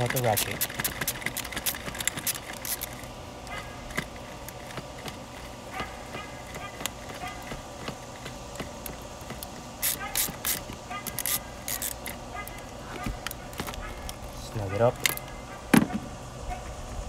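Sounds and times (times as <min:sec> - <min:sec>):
socket ratchet clicking: 0:00.0 - 0:03.0, 0:06.6 - 0:12.6.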